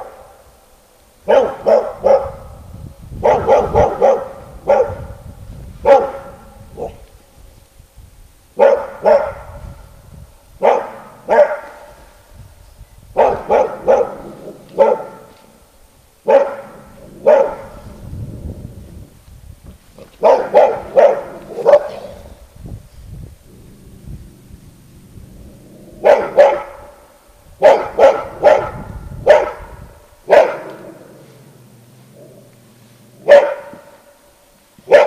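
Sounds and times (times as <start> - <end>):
dog barking loudly: 1.2 - 2.6, 3.2 - 5.2, 5.8 - 7.0, 8.6 - 9.6, 10.6 - 11.9, 13.2 - 15.3, 16.2 - 17.8, 20.2 - 22.3, 26.0 - 27.0, 27.6 - 31.0, 33.2 - 34.0.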